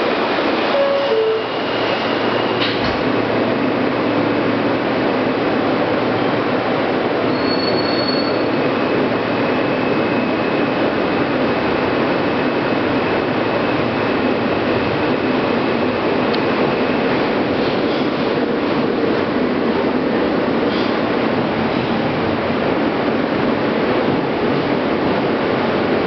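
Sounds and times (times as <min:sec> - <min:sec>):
subway wheels rumbling on rail: 0:00.0 - 0:26.0
thin wheel squeal: 0:07.3 - 0:08.4.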